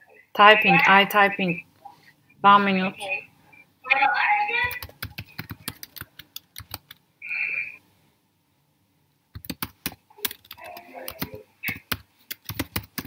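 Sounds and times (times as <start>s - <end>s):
computer keyboard typing: 4.6s - 7.0s, 9.3s - 13.0s.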